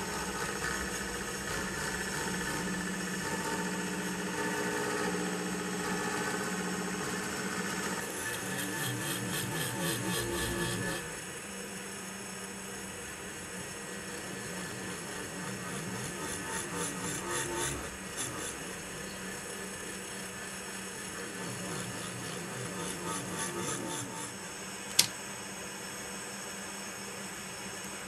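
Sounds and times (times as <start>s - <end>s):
milling machine motor whine: 0.0s - 25.1s
cutting rasp: 8.0s - 11.0s, 14.2s - 18.9s, 21.2s - 24.4s.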